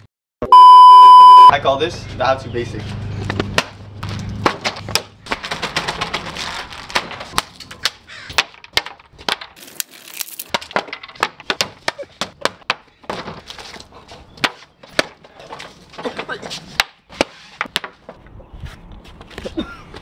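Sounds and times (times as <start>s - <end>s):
wooden blocks hitting a board: 4.4s - 13.4s, 16.0s - 18.2s.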